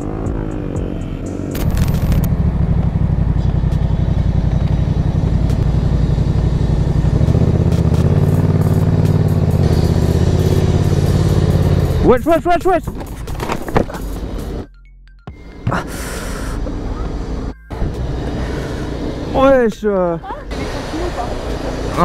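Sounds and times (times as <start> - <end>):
motorcycle engine running: 0.0 - 14.6.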